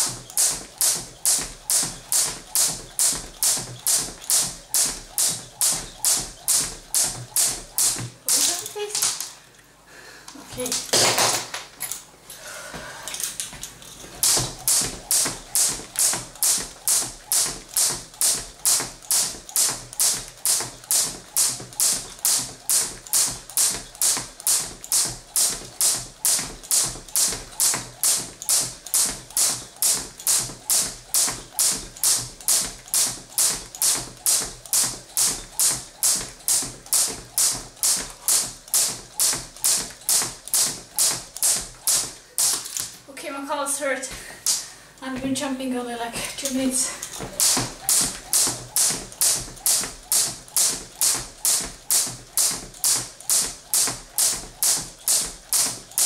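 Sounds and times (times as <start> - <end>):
jump rope striking the floor: 0.0 - 9.3, 10.5 - 11.8, 13.4 - 43.0, 44.1 - 45.3, 46.4 - 56.0.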